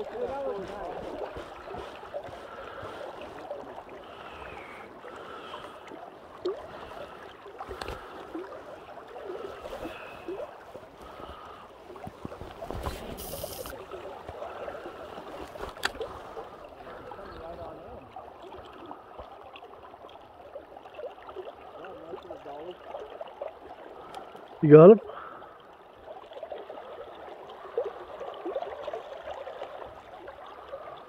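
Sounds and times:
water lapping against boat hull: 0.0 - 31.0
short hiss: 12.8 - 13.8.

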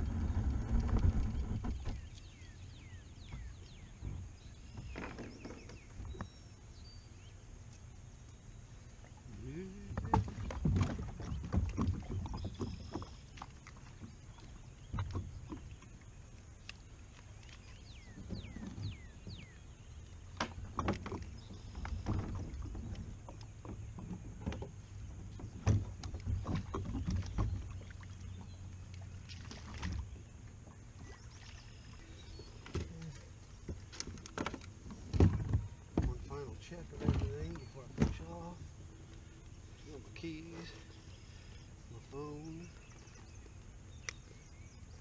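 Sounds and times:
low steady rumble: 0.0 - 4.8.

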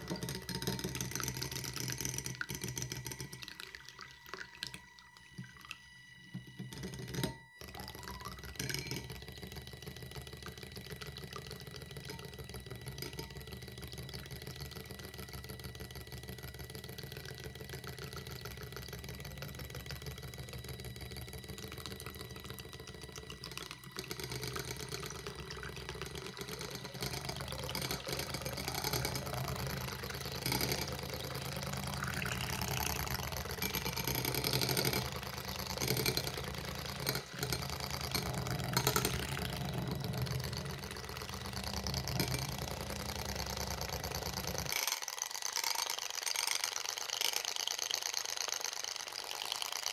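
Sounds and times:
electric whisk motor whine: 0.0 - 49.9
whisk beating eggs in glass bowl: 0.0 - 49.9.

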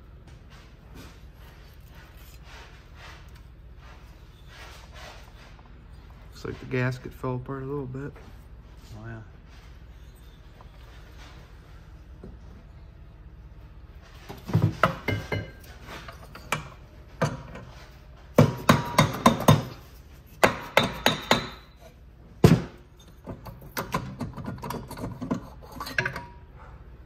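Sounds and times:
sharp metal knocks and taps: 14.6 - 15.6, 18.4 - 19.8, 20.4 - 21.8.

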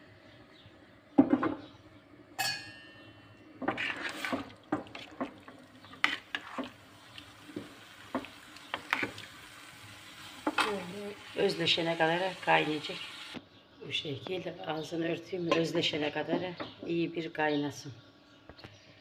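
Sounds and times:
ringing metal clink: 2.4 - 3.4
spoon stirring in steel pot: 3.6 - 9.3.

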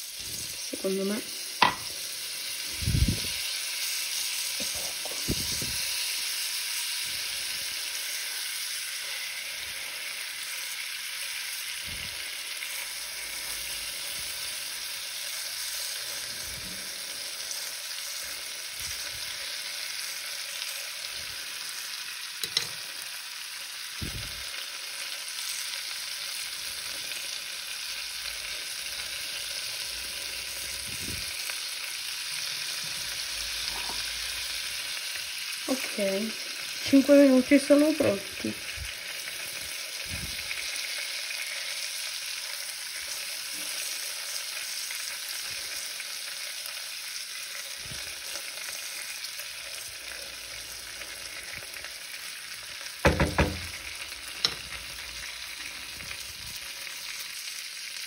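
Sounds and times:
fish fillets sizzling in a pan: 0.0 - 58.0
wooden spatula knocks: 1.6 - 1.9, 53.1 - 53.8.

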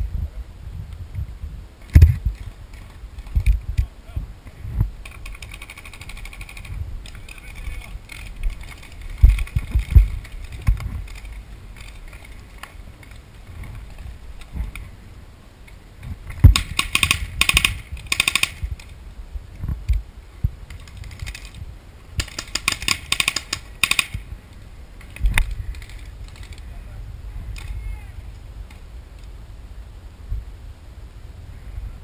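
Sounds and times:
paintball markers firing: 16.4 - 18.6, 22.2 - 24.2.

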